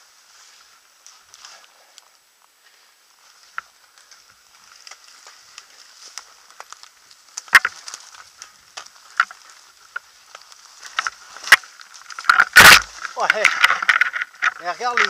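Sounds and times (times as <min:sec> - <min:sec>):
leaves and twigs crackling underfoot: 0:00.0 - 0:15.0.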